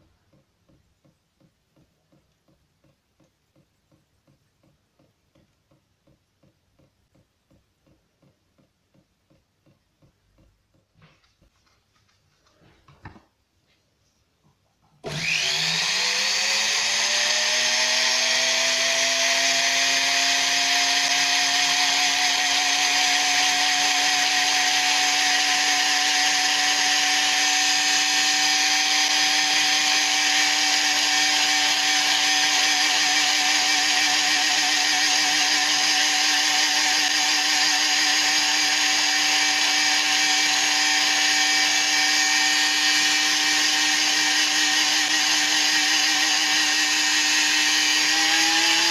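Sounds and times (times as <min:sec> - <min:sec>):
rotary tool motor whine: 0:15.0 - 0:48.9.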